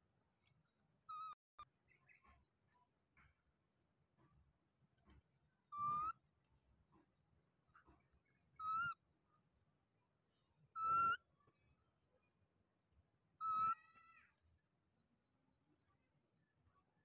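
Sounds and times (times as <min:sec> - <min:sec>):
baby monkey coo calls: 0:01.1 - 0:01.4, 0:05.7 - 0:06.2, 0:08.6 - 0:09.0, 0:10.8 - 0:11.3, 0:13.4 - 0:14.4.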